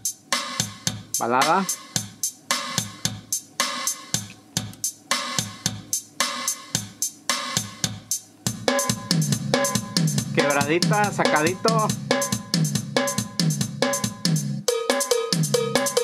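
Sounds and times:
drum machine loop: 0:00.0 - 0:16.0.

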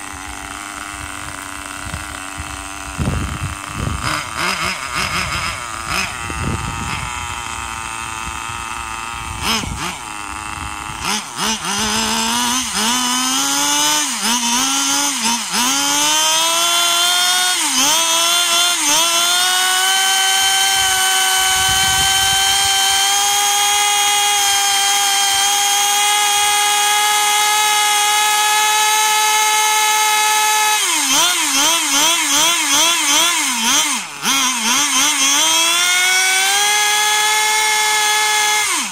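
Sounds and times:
small engine revving: 0:00.0 - 0:38.9.

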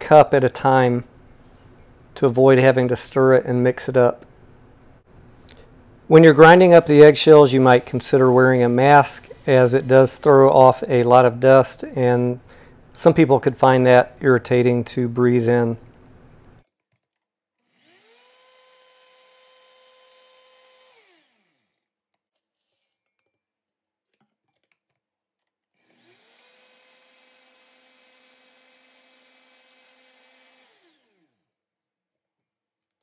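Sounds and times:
faint blender whine: 0:06.1 - 0:11.0, 0:17.7 - 0:21.8, 0:25.8 - 0:31.4.

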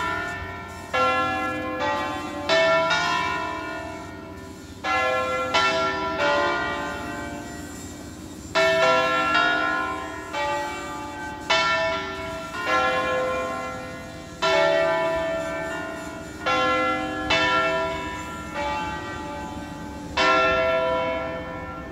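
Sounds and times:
church bells ringing: 0:00.0 - 0:21.9.

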